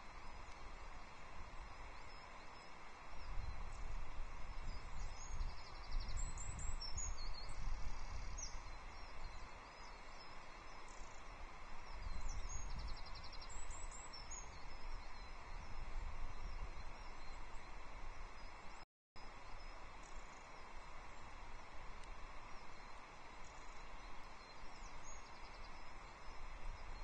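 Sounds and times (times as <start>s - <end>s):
songbirds chirping and trilling: 0.1s - 27.0s
wind buffeting microphone: 3.2s - 9.4s, 11.8s - 18.4s.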